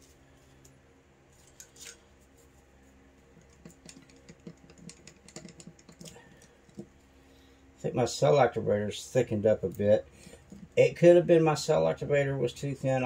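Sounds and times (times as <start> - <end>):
light clicks and taps: 3.3 - 7.1.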